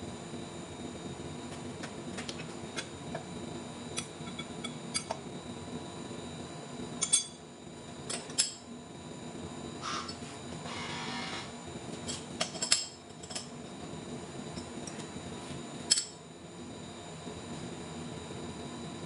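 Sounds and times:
machine hum: 0:00.0 - 0:19.0.

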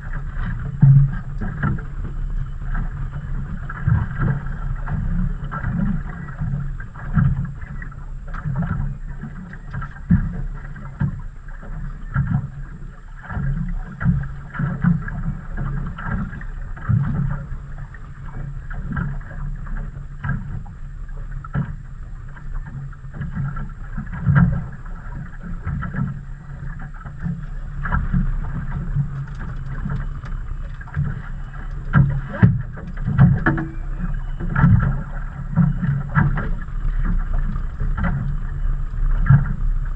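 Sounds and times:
water slapping against boat hull: 0:00.0 - 0:39.9
low thumps: 0:31.9 - 0:35.0.

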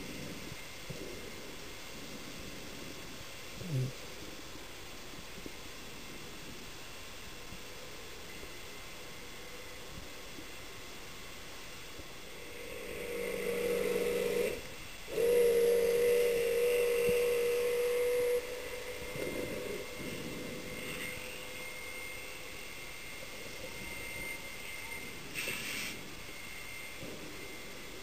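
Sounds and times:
underwater electric motor whining: 0:12.2 - 0:28.0.

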